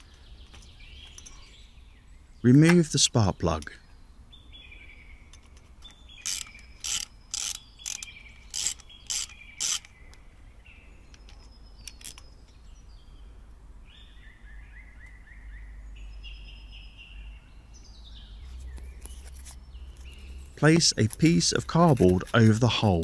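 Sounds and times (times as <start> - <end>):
birds chirping faintly: 0.0 - 23.0
ratchet wrench clicking: 6.2 - 10.0.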